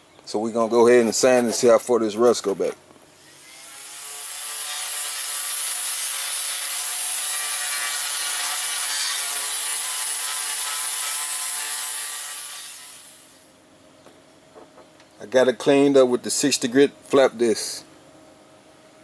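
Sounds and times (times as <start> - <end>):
angle grinder grinding metal: 3.2 - 13.1.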